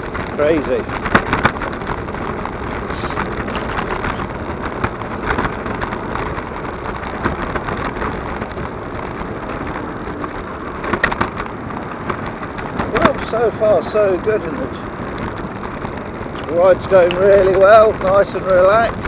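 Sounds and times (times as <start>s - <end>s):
electric scooter rolling on asphalt: 0.0s - 19.0s
scooter knocks and rattles: 0.0s - 19.0s
wind noise: 0.0s - 19.0s.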